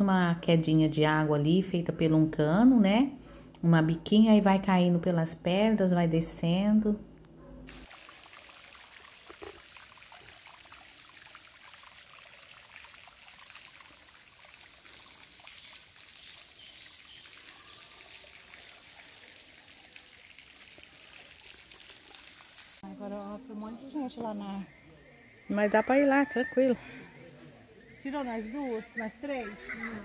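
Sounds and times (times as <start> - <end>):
water trickling over rocks: 7.7 - 22.9.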